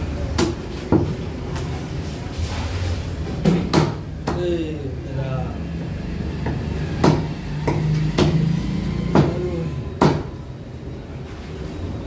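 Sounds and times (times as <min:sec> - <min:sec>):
cleaver chopping on wooden block: 0:07.0 - 0:08.4.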